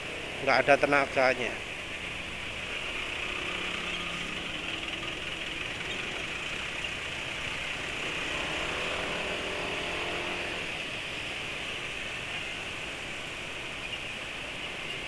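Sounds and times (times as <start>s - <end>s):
scooter engine idling: 3.0s - 8.0s.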